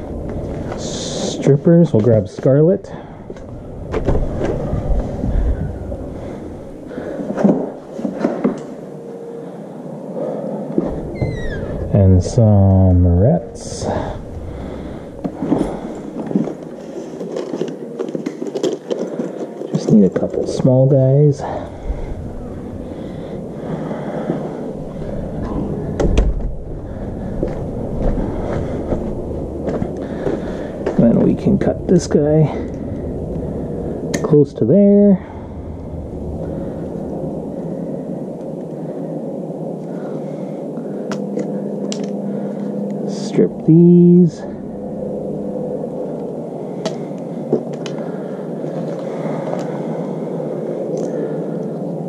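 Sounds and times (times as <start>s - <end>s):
low rumble on microphone: 0.0s - 8.5s, 10.2s - 18.0s, 19.8s - 52.0s
steady background rush: 0.0s - 52.0s
footsteps: 3.2s - 8.8s, 10.7s - 20.7s, 21.4s - 31.7s
footsteps and light knocks: 7.2s - 8.8s
door opening and shutting: 10.8s - 12.0s, 25.9s - 26.6s
heavy door thump: 25.9s - 26.7s.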